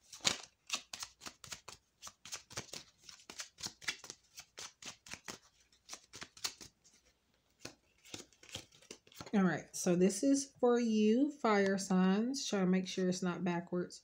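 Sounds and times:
cards being shuffled by hand: 0:00.0 - 0:09.4.

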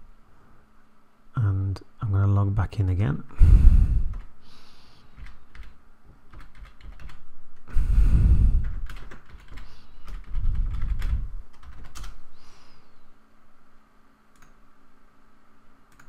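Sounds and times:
low muffled rumbles: 0:07.7 - 0:09.0.

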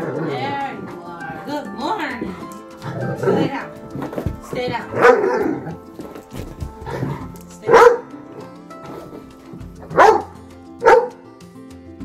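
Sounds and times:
background music: 0:00.0 - 0:12.0
dog barking: 0:04.8 - 0:05.9, 0:06.9 - 0:08.5, 0:09.8 - 0:11.2.

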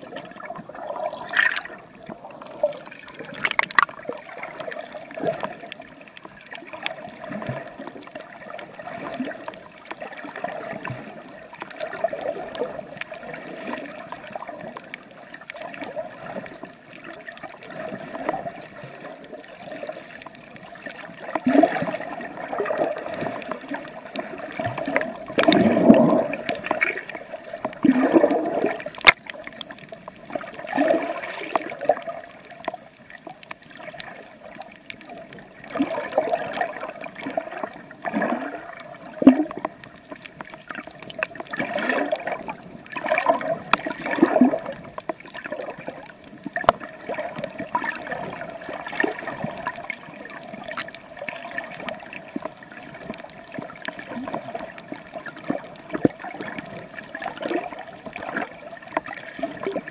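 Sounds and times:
water gurgling and sloshing: 0:00.0 - 0:59.9
clicks: 0:03.4 - 0:04.0.

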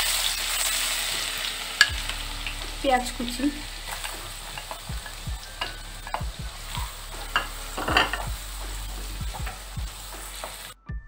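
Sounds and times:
onion sizzling in hot oil: 0:00.0 - 0:10.8
spatula scraping and tapping pan: 0:03.9 - 0:10.8.

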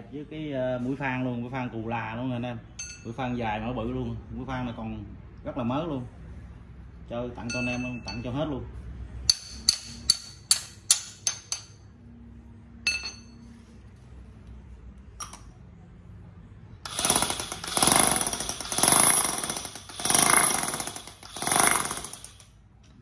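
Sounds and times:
steel tool bits clinking: 0:02.8 - 0:03.2, 0:07.4 - 0:08.4, 0:12.9 - 0:13.4
electric demolition hammer hammering: 0:16.8 - 0:22.5.

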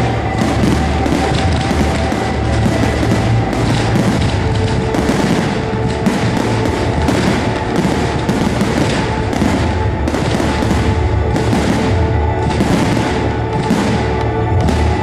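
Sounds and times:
fireworks bursting with crackle: 0:00.0 - 0:15.0
music playing: 0:00.0 - 0:15.0.

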